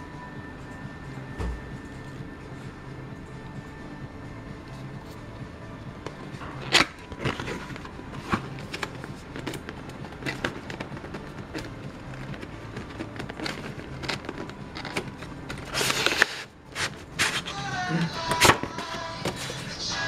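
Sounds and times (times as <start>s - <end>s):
fingers tapping and rustling cardboard: 6.0s - 17.5s.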